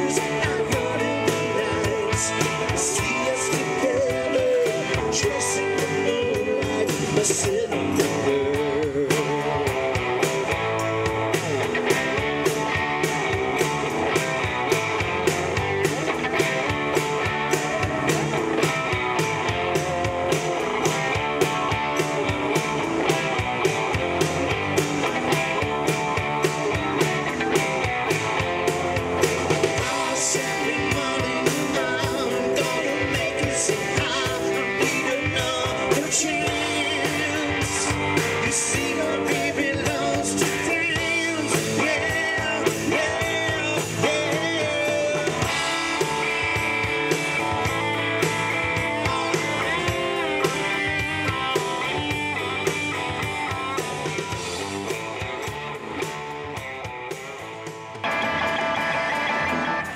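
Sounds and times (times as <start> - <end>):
person singing into microphone: 0.0 - 9.8, 29.8 - 45.7
drum kit beat: 0.0 - 59.9
electric bass: 0.0 - 59.9
electric guitars: 0.0 - 59.9.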